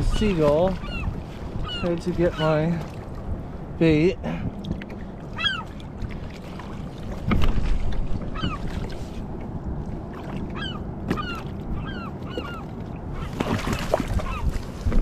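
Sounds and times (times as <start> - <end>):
gull squawking: 0.0 - 2.6, 5.3 - 5.7, 8.3 - 8.7, 10.5 - 13.6, 14.2 - 14.5
water noise: 0.0 - 15.0
wind: 0.0 - 15.0.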